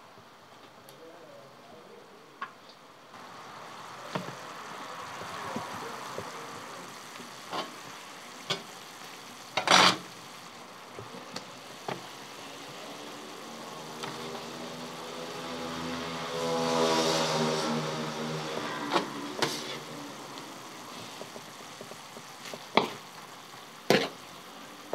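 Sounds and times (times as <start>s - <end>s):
meat sizzling on a pan: 3.2s - 24.9s
passing motor engine hum: 12.6s - 21.6s.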